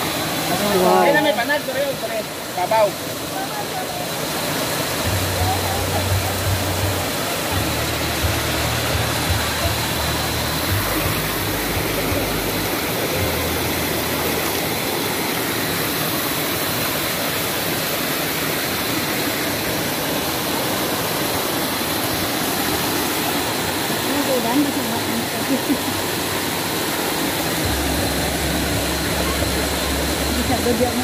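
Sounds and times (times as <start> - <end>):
waterfall splashing over rocks: 0.0 - 31.0.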